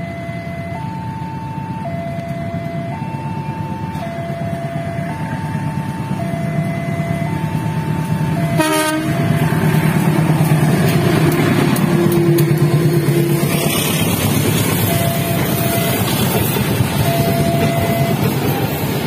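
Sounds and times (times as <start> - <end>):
trains rumbling past: 0.0 - 19.0
locomotive horn blast: 8.4 - 9.5.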